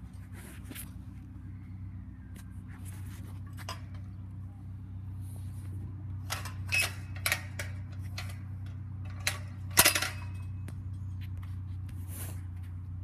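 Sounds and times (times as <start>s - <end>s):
steady low hum: 0.0s - 13.0s
chain-link fence clinking: 6.2s - 11.0s.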